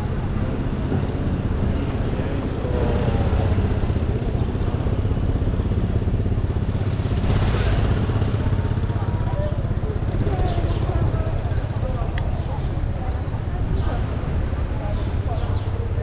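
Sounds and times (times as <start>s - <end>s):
street noise: 0.0s - 16.0s
vehicle engine low rumble: 0.0s - 16.0s.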